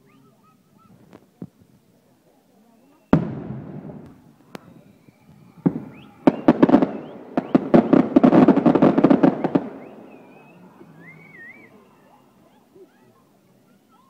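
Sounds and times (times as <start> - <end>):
firework crackle: 2.9 - 12.2
firework bang: 3.1 - 10.2.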